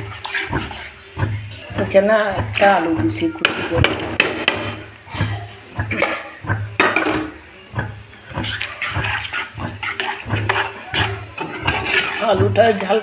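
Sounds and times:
metal spoon scraping pan: 0.0 - 1.0, 8.4 - 13.0
thick sauce sloshing: 0.0 - 13.0.

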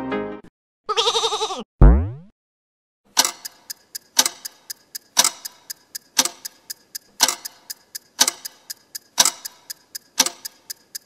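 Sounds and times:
clock ticking: 3.1 - 11.0.

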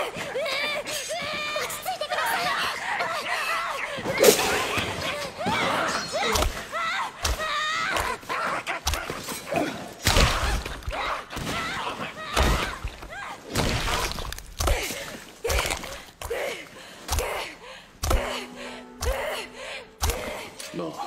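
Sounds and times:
young woman gasping cries: 16.3 - 20.8.

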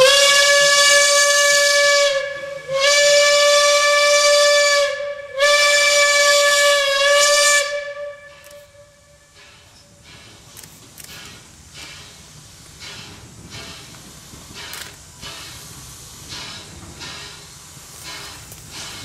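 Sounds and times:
steam locomotive whistle blasts: 0.0 - 9.4.

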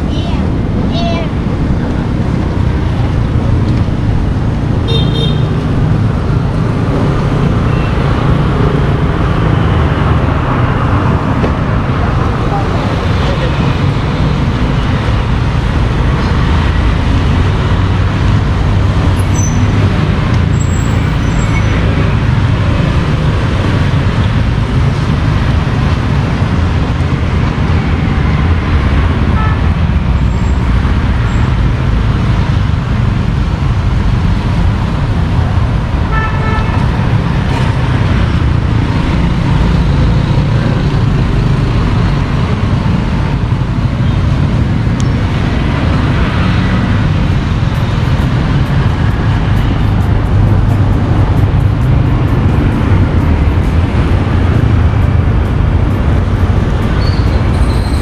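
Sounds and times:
street traffic noise: 0.0 - 58.0.

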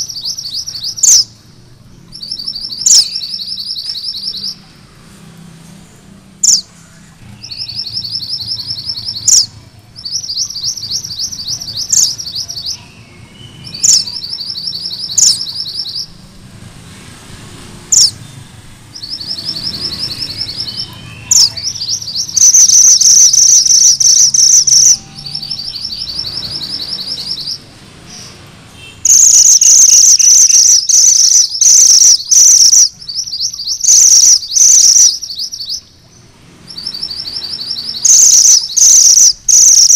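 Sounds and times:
bird singing high trills: 0.0 - 4.7, 6.4 - 16.2, 17.9 - 18.3, 18.9 - 39.9
sharp high bird notes: 19.0 - 27.7, 28.7 - 36.0, 36.7 - 39.9.

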